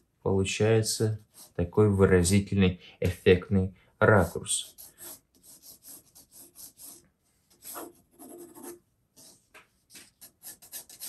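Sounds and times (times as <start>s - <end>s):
pencil scratching on paper: 1.1s - 1.7s, 4.1s - 11.0s.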